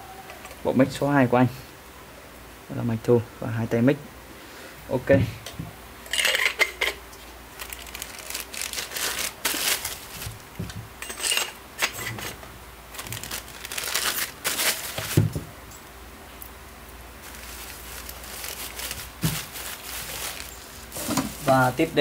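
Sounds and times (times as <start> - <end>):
packaging crinkling and rustling: 7.5 - 15.5, 17.2 - 22.0.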